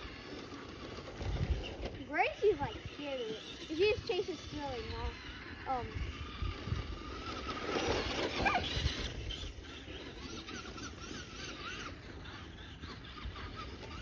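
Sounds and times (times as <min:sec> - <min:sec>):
electric motor whining: 0:00.0 - 0:14.0
dog yelping: 0:08.2 - 0:08.9.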